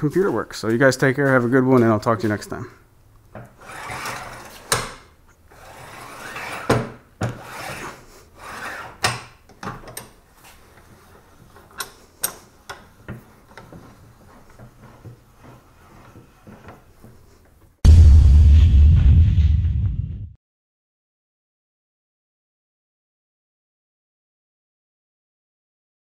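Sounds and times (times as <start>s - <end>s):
vise screw and jaw sliding: 3.5s - 9.2s, 9.8s - 17.3s
vise handle clicks and knocks: 9.0s - 10.2s.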